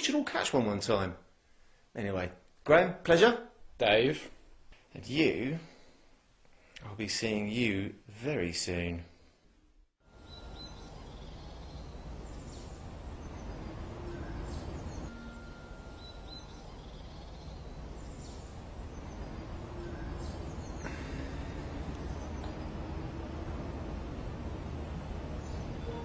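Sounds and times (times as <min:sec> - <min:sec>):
low background rumble: 0:10.2 - 0:26.0
small birds chirping: 0:10.2 - 0:26.0.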